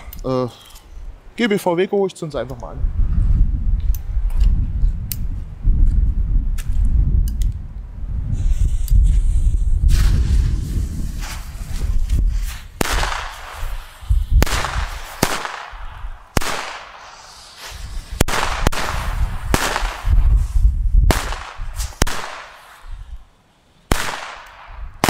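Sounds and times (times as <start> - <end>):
firecracker bangs: 12.8 - 20.5, 21.1 - 22.9.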